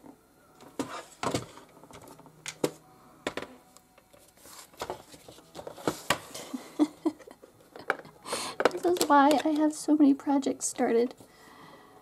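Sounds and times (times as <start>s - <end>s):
paper rustling: 4.1s - 6.5s.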